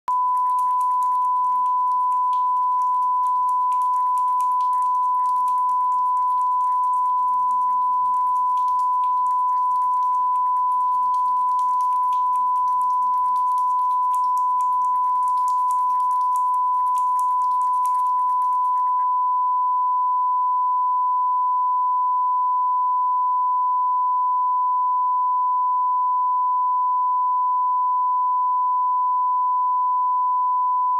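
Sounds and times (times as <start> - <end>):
steady test tone: 0.1 - 19.1.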